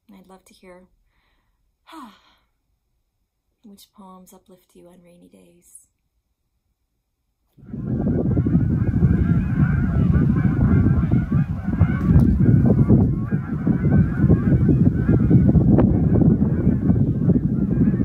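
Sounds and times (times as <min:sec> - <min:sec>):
geese honking: 0:07.6 - 0:18.0
steady low rumble: 0:07.6 - 0:18.0.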